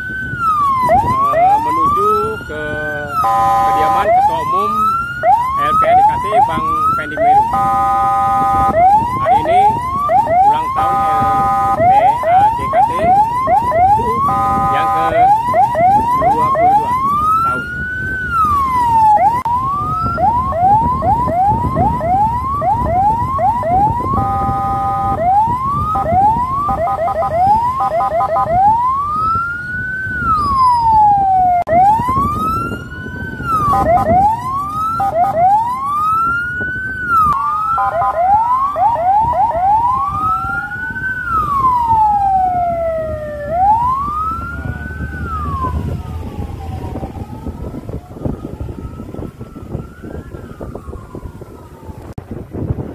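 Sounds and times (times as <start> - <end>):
electronic siren yelp and wail: 0.0 - 52.2
road and engine rumble: 0.0 - 52.9
multi-note horn blasts: 3.1 - 4.3, 7.4 - 8.9, 10.7 - 12.1, 14.1 - 15.3, 24.1 - 25.3, 25.9 - 28.6, 33.6 - 34.2, 34.9 - 35.5, 37.8 - 38.4.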